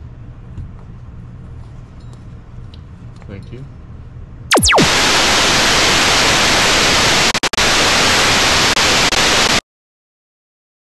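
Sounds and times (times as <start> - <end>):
static white noise hiss: 4.5 - 9.6.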